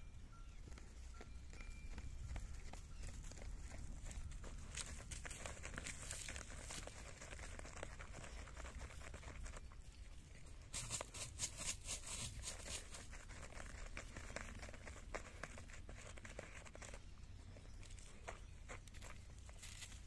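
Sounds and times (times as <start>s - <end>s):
dog digging in dry soil: 0.4s - 20.0s
dry leaves rustling: 2.6s - 9.6s, 10.7s - 17.0s, 18.0s - 20.0s.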